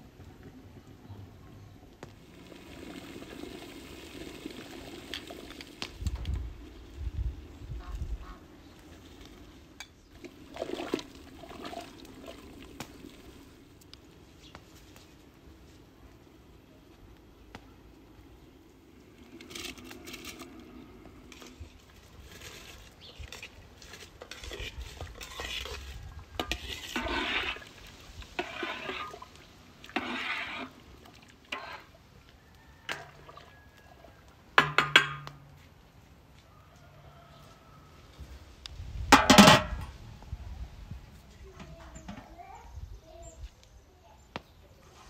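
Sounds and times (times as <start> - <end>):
water splashing in metal pot: 9.2 - 13.7, 23.8 - 32.0, 32.8 - 33.8
metal lid clanking on pot: 34.6 - 35.4.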